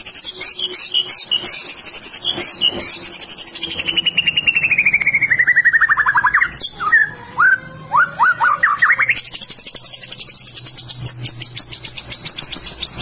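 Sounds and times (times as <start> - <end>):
upward-sweeping bird whistles: 0.0 - 9.5
bird singing fast trill: 0.0 - 13.0.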